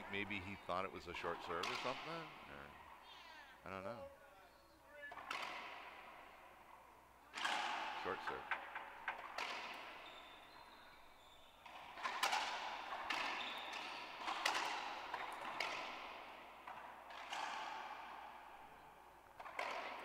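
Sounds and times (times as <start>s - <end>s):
ball bouncing with ringing echo: 0.0s - 3.0s, 5.1s - 20.0s.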